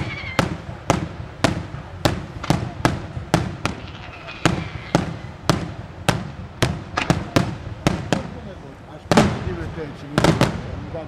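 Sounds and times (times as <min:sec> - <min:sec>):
fireworks shells bursting: 0:00.0 - 0:08.4.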